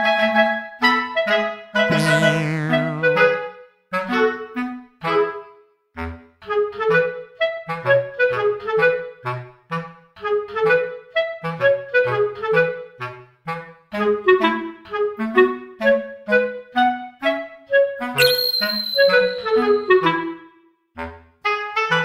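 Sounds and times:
bass part: 0:01.9 - 0:03.2
bouncy woodwind tune: 0:01.9 - 0:03.2.

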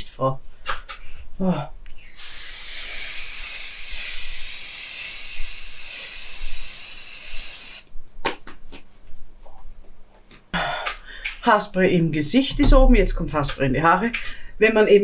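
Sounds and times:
spray misting hiss: 0:02.2 - 0:07.8.

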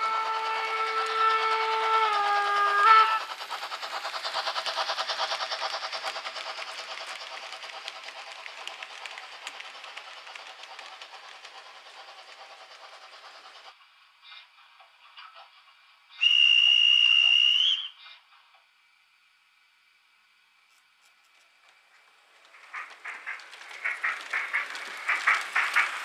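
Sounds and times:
steam locomotive whistle: 0:00.0 - 0:03.4, 0:16.2 - 0:18.1
rhythmic running of model train: 0:00.0 - 0:26.0.

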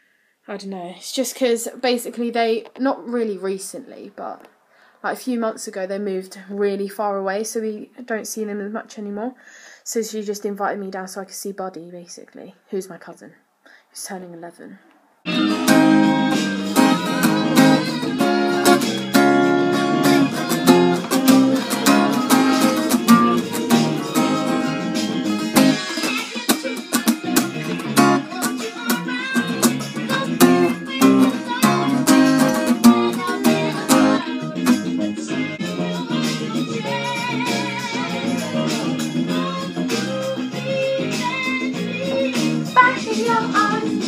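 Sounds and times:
acoustic guitar strumming and picking: 0:15.3 - 0:44.0.

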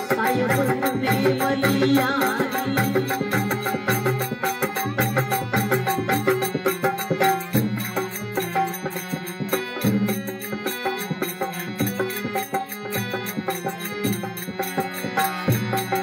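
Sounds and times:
man singing: 0:00.0 - 0:04.0
harmonium: 0:00.0 - 0:16.0
rhythmic percussion beat: 0:00.0 - 0:16.0.

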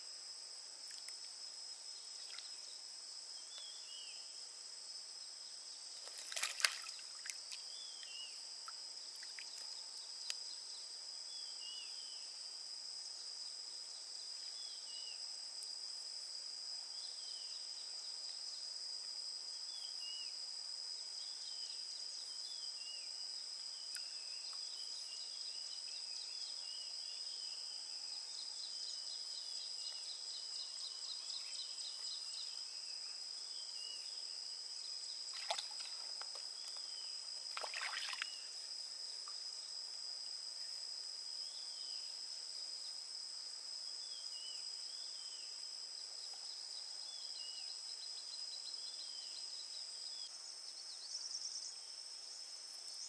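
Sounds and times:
high insect drone: 0:00.0 - 0:53.0
water splashing off net: 0:06.0 - 0:07.4, 0:35.3 - 0:36.1, 0:37.5 - 0:38.3.

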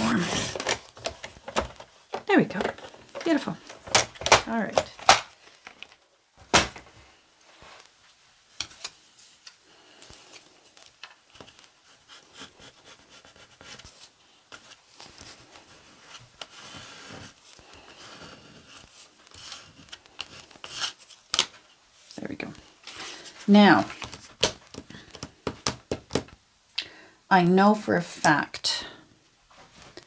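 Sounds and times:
plastic card scraping paper: 0:16.4 - 0:21.2.

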